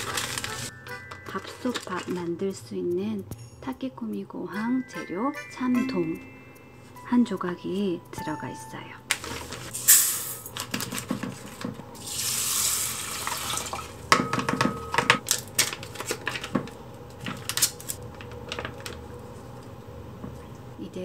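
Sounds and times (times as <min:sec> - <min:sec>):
plastic and foil packaging crinkling: 0:00.0 - 0:02.6, 0:09.1 - 0:13.9, 0:15.2 - 0:19.7
liquid pouring onto rice: 0:12.0 - 0:13.9.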